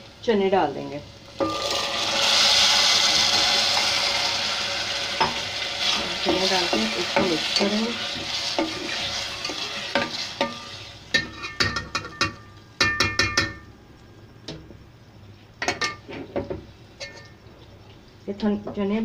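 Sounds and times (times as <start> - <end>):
food sizzling in a pot: 0.0 - 13.5
spoon clinking against a pot: 9.4 - 13.7.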